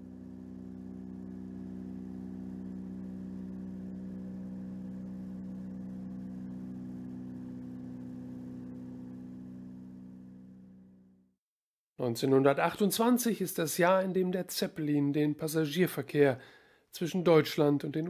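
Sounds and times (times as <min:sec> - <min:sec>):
airship engines droning: 0:00.0 - 0:11.1.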